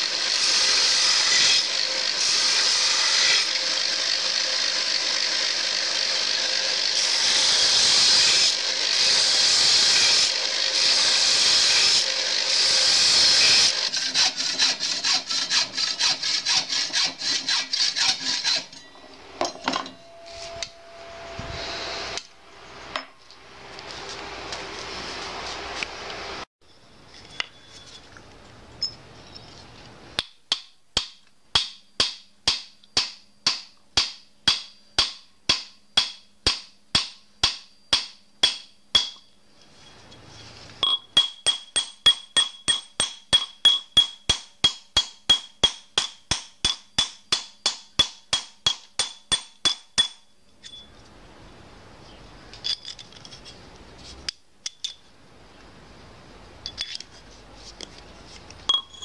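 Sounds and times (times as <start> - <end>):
hammer tapping steel tube: 40.8 - 50.2.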